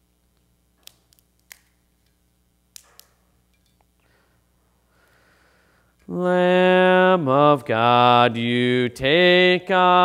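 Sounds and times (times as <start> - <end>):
bread snapping by hand: 0.8 - 1.8, 2.7 - 3.2.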